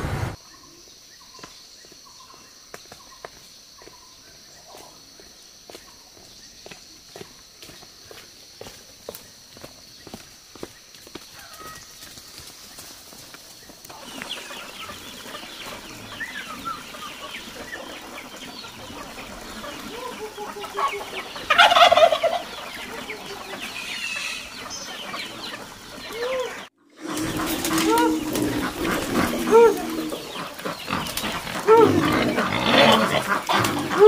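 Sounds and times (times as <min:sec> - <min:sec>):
chickens clucking: 0:13.8 - 0:34.0
chicken squawk: 0:14.0 - 0:34.0.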